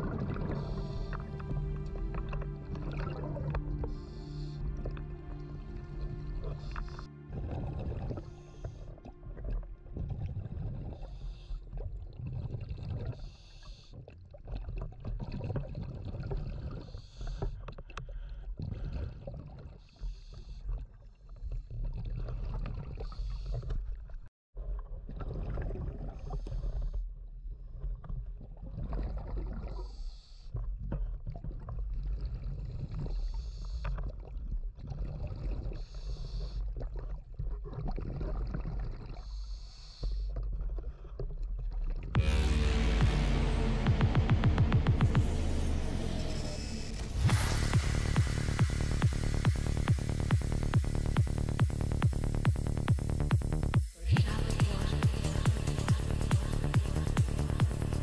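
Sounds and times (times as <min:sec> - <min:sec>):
scuba regulator breathing: 0:00.0 - 0:09.0
exhaled bubbles venting: 0:00.0 - 0:13.3, 0:36.8 - 0:39.3
low rumble of water: 0:00.0 - 0:58.0.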